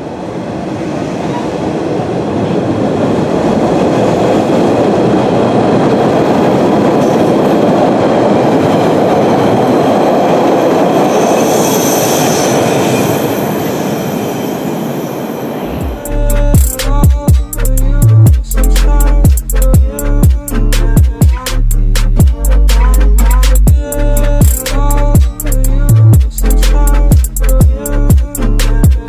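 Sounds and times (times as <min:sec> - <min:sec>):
subway train rumbling past: 0:00.0 - 0:29.0
high wheel squeal: 0:10.5 - 0:16.5.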